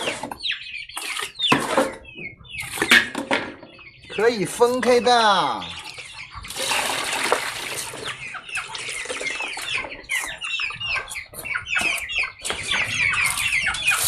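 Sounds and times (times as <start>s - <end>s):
birds chirping: 0.0s - 14.0s
water splashing from basin: 6.5s - 8.1s.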